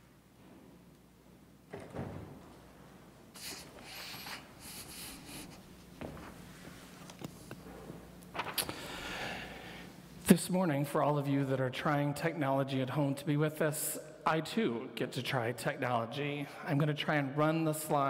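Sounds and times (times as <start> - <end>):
thump: 1.7 - 2.6
soft footsteps: 1.7 - 8.2
paper rustling: 8.3 - 8.7.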